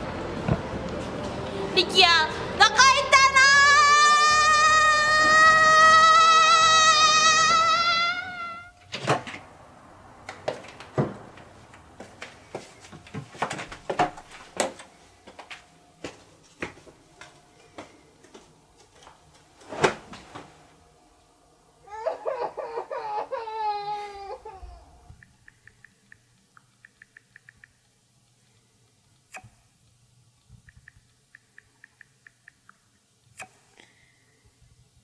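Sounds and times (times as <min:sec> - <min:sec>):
woman crying: 0:21.9 - 0:25.0
faint quick regular ticks: 0:25.2 - 0:29.4.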